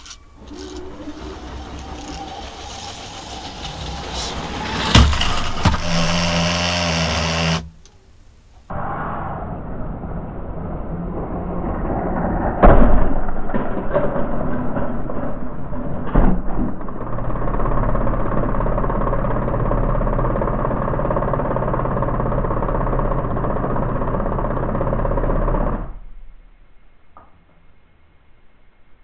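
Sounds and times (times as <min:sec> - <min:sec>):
toy train electric motor: 0:00.0 - 0:07.7
toy train crash: 0:00.0 - 0:07.8
sharp knock: 0:04.8 - 0:06.5.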